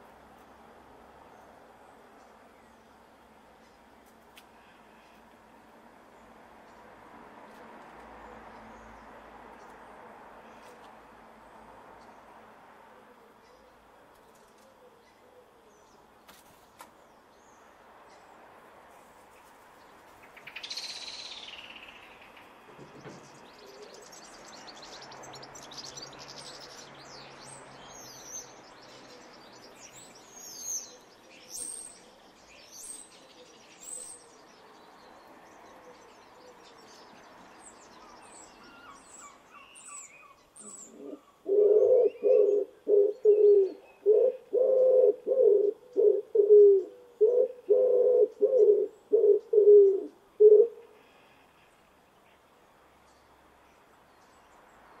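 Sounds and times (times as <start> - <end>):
small birds chirping: 19.1 - 44.1
pigeon cooing: 40.6 - 50.9.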